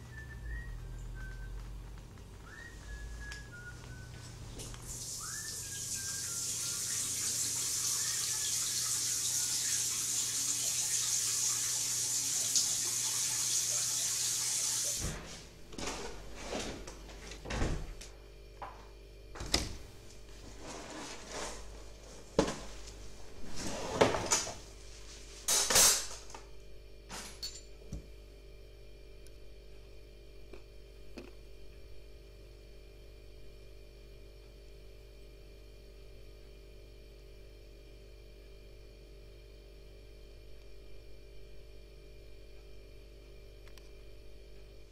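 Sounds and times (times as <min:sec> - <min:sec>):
water running from sink tap: 0:04.8 - 0:15.0
kitchen things clattering: 0:25.5 - 0:26.4, 0:27.1 - 0:27.8.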